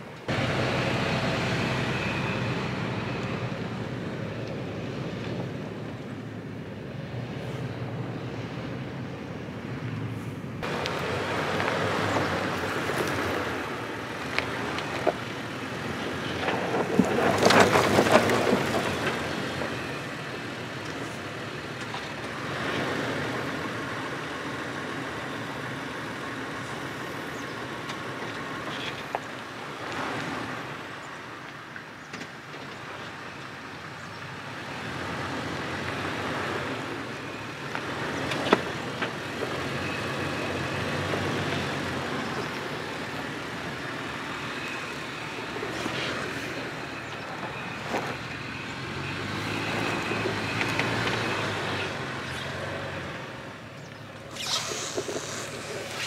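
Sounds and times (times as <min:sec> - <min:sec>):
engine running at low speed: 0:00.0 - 0:56.0
tyres crunching over rocks: 0:16.0 - 0:20.0.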